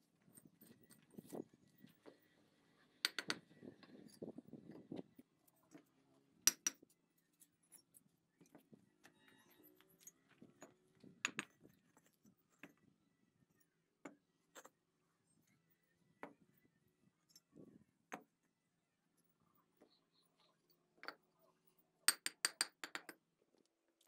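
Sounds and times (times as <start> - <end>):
bricks knocking and clinking: 3.1 - 4.3, 6.5 - 6.9, 10.6 - 12.8, 22.1 - 23.2.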